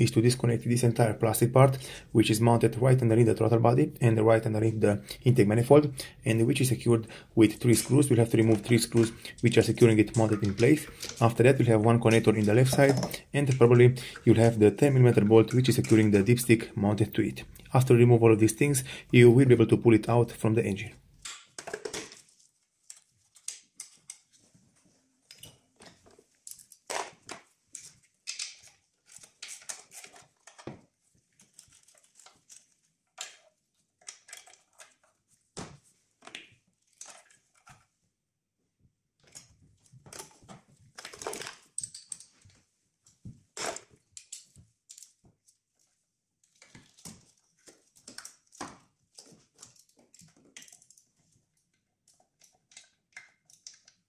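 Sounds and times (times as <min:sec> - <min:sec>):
plastic engine parts rattling: 0:07.6 - 0:16.5, 0:21.3 - 0:22.4, 0:25.8 - 0:35.1, 0:39.2 - 0:42.6, 0:46.4 - 0:54.0
hand tools clicking and tapping: 0:07.7 - 0:14.3.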